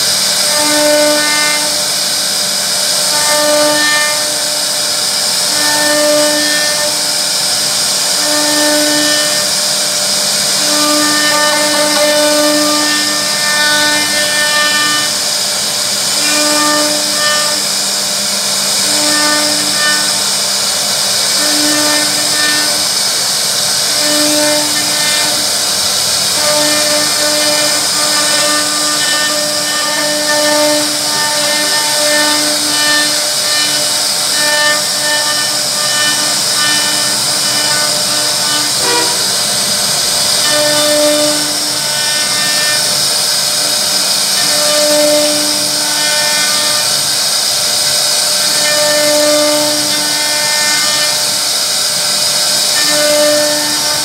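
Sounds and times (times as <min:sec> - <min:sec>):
router spindle whining: 0:00.0 - 0:54.0
pitched hum: 0:03.0 - 0:17.6, 0:21.4 - 0:44.6.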